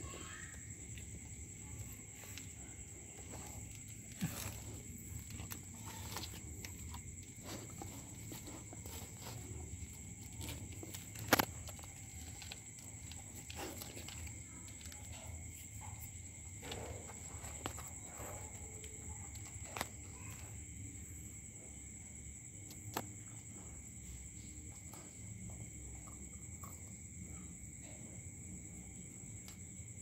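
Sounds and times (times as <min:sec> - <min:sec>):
night insects trilling: 0:00.0 - 0:30.0.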